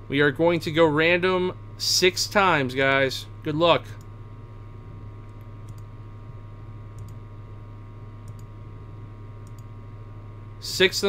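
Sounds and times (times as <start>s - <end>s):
low electrical hum: 0.0s - 11.0s
computer mouse clicks: 5.2s - 5.9s, 7.0s - 7.2s, 8.2s - 8.5s, 9.4s - 9.7s.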